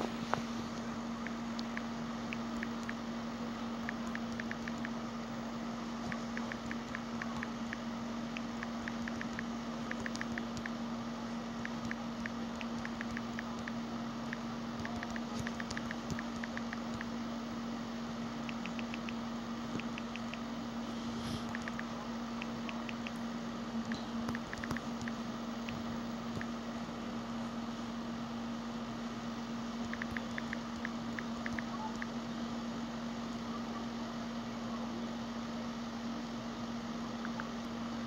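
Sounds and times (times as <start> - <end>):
steady low hum: 0.0 - 38.0
touchscreen typing ticks: 1.2 - 3.0, 3.8 - 5.0, 6.0 - 10.8, 11.6 - 17.1, 18.5 - 20.4, 21.5 - 23.2, 24.2 - 26.5, 29.8 - 32.1.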